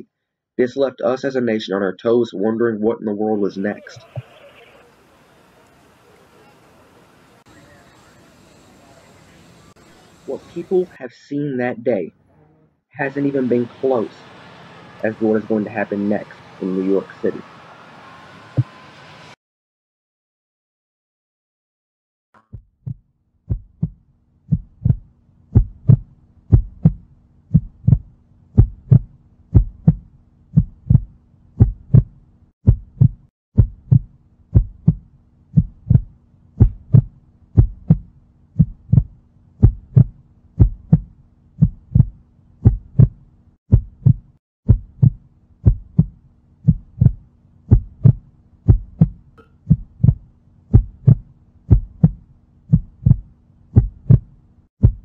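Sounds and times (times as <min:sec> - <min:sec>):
heartbeat thumps: 0:22.5 - 0:55.0.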